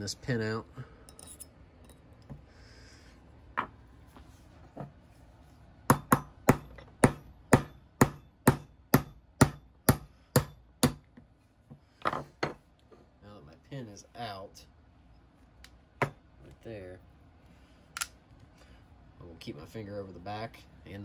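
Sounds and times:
hammer striking pin punch: 5.9 - 11.1.

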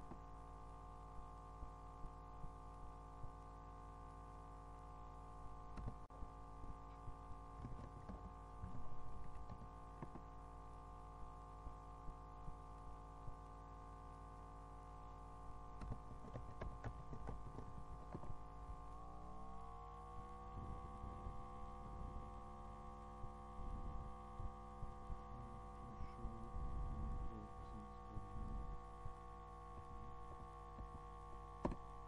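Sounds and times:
multi-tone hum: 0.0 - 32.0
soft low thumps: 23.1 - 31.0.

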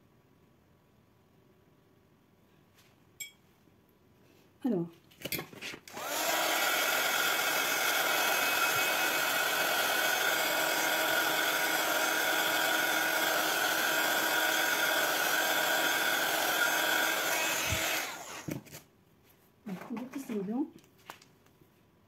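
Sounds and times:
small electric tool running: 5.9 - 18.6.

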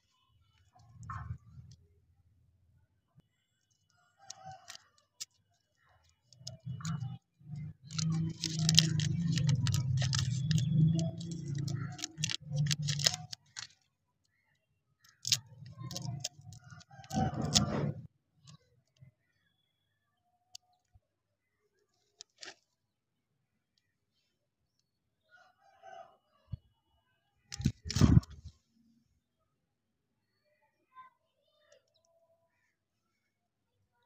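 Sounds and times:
plastic wrapper crinkling: 7.6 - 13.8, 15.1 - 17.7, 27.5 - 28.4.

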